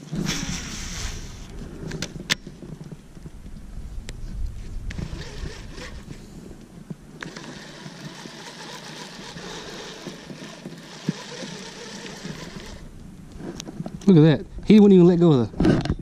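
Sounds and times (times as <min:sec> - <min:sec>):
microphone rumble: 0:00.0 - 0:07.2
fishing reel whirring: 0:04.9 - 0:06.2, 0:07.2 - 0:12.9.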